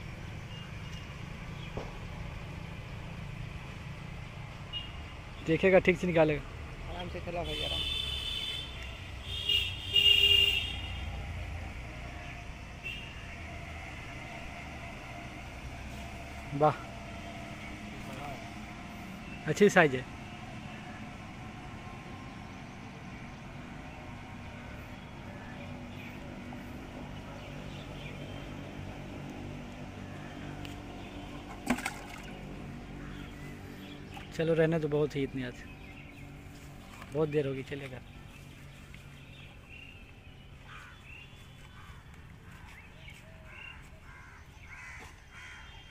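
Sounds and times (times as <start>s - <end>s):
distant engine hum: 0.0s - 45.7s
crows cawing: 30.0s - 30.7s, 32.9s - 33.6s, 40.6s - 42.7s, 43.4s - 45.9s.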